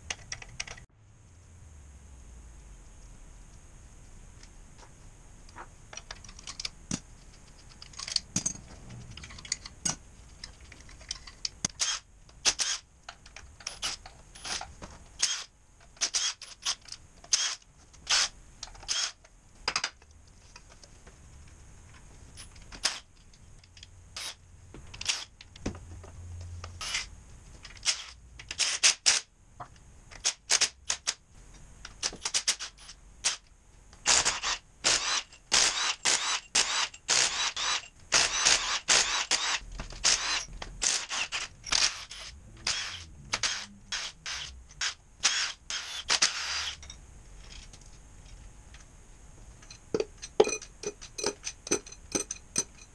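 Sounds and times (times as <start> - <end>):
ratchet clicks: 10.8 - 19.9, 27.7 - 29.2, 34.1 - 47.0, 49.7 - 52.9
metal clinks: 49.6 - 52.9.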